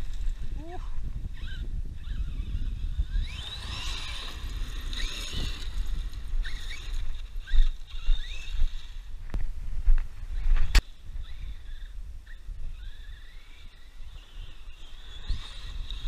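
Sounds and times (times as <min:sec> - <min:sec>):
electric motor whining: 0:00.0 - 0:09.5, 0:10.2 - 0:16.0
wind on microphone: 0:00.0 - 0:16.0.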